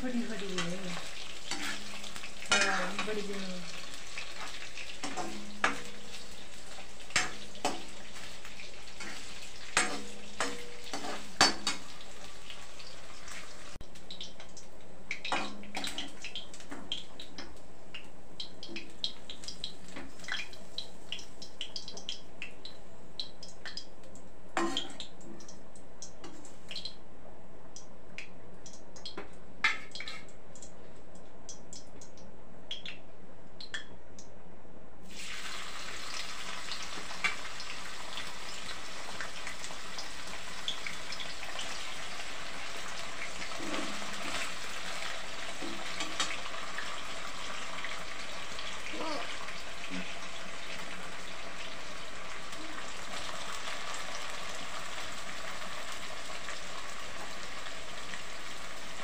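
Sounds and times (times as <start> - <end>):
food sizzling in oil: 0.0 - 14.4, 35.0 - 59.0.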